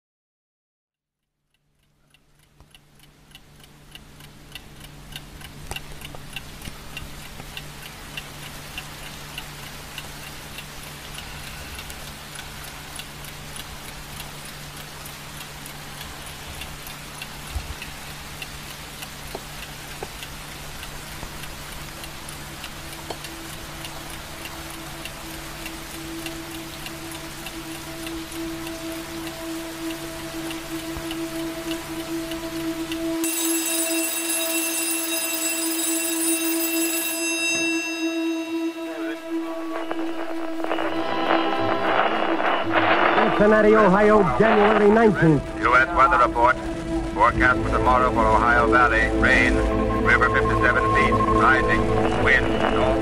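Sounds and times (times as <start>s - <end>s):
regular ticking: 1.4s - 53.0s
steady hiss: 2.9s - 33.3s, 38.3s - 53.0s
low hum: 4.3s - 33.3s, 37.5s - 53.0s
held musical tone: 21.5s - 53.0s.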